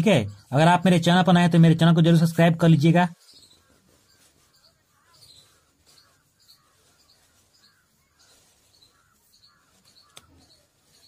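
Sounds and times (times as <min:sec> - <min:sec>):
faint bird chirps: 0:03.1 - 0:11.0.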